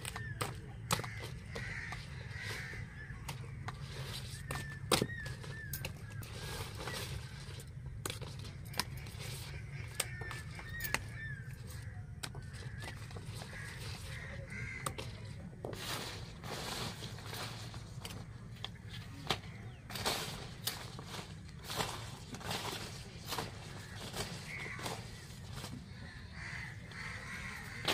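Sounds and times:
bird wavering calls: 0.0 - 7.7, 8.5 - 27.9
large leaves rustling: 5.1 - 11.9, 12.5 - 27.9
stalks snapping: 18.0 - 25.8.

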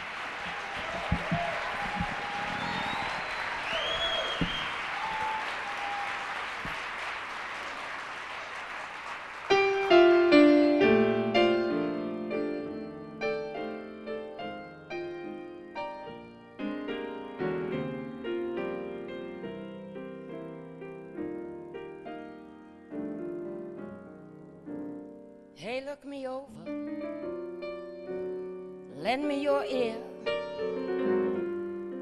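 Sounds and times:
audience applause: 0.0 - 10.0
solo piano: 9.5 - 25.7, 26.6 - 32.0.

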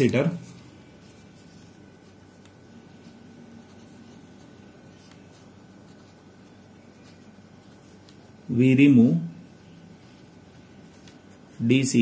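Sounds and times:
pen scratching on paper: 0.4 - 8.5.

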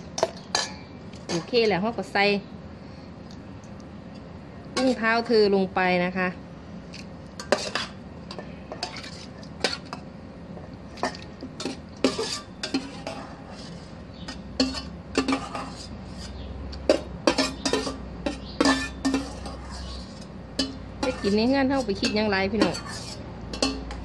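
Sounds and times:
metal spoon scraping a pot: 0.2 - 1.9, 4.8 - 5.3, 7.4 - 10.1, 11.0 - 24.0.

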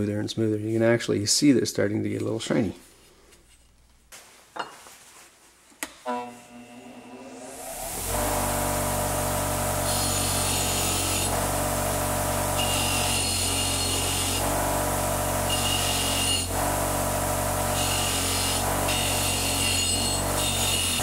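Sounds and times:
bench buffer motor hum: 6.1 - 21.0
rasping whine of metal sanding: 6.1 - 21.0.

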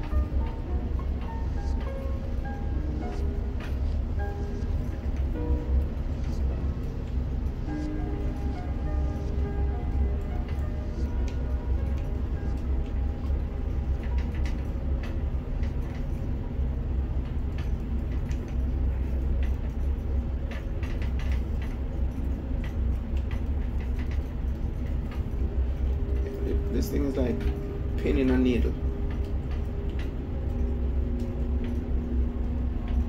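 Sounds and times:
crane machinery rumble: 0.0 - 33.0.

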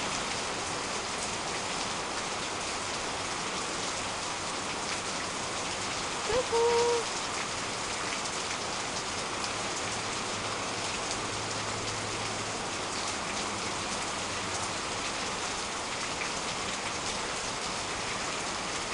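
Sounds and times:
heavy rain hissing: 0.0 - 8.0.

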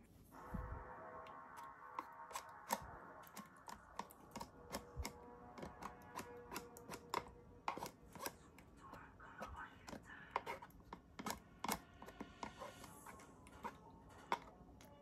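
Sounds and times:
faint background music: 0.0 - 15.0
spoon scraping container: 1.5 - 8.6, 10.4 - 14.9.

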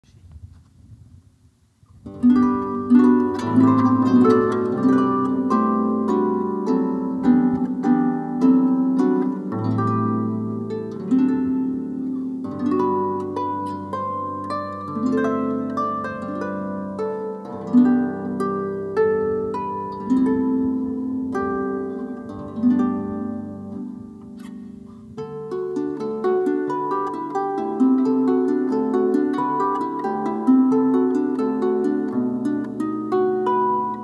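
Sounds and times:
harp melody: 2.0 - 34.0.

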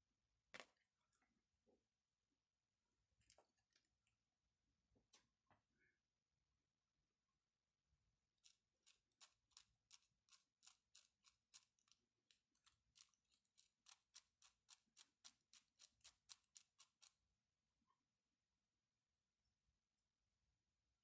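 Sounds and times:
mechanical counter clicking: 8.4 - 17.2.

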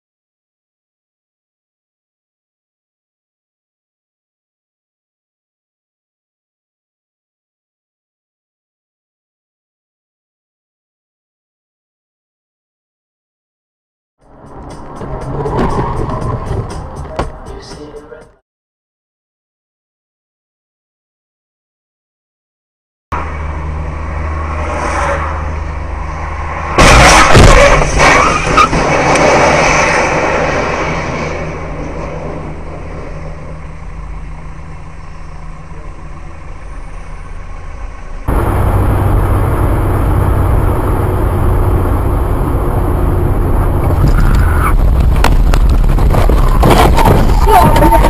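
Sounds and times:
car engine and road noise: 14.2 - 18.4, 23.1 - 48.0
loud crash impact: 26.7 - 30.4.

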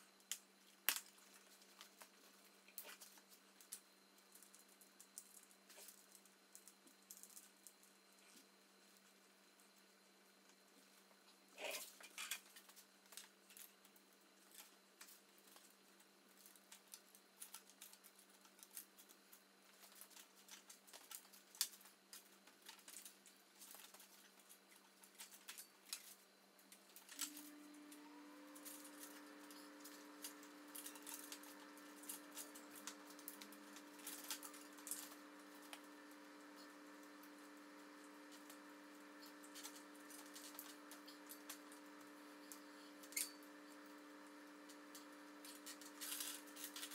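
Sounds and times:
steady low hum: 0.0 - 46.9
bicycle parts clicking and rattling: 45.4 - 46.9.

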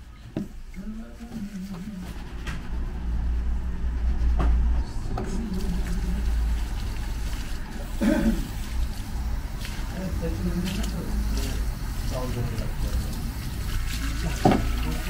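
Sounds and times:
hair scrubbing rumble: 0.8 - 15.0.

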